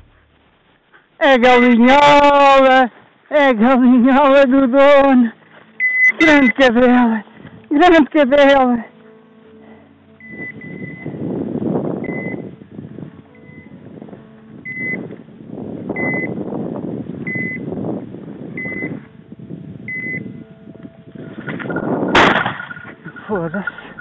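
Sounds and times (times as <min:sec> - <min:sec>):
short high beeps: 0:05.8 - 0:06.6, 0:10.2 - 0:11.1, 0:12.1 - 0:12.4, 0:16.0 - 0:16.3, 0:17.3 - 0:17.6, 0:18.6 - 0:19.0, 0:19.9 - 0:20.4
shotgun shot: 0:22.2 - 0:22.8.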